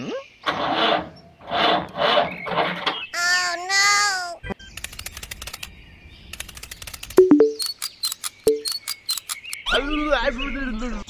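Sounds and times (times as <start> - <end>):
rapid sharp clicks: 4.8 - 5.7, 6.3 - 9.6
two-note cartoon bloop: 7.2 - 7.6.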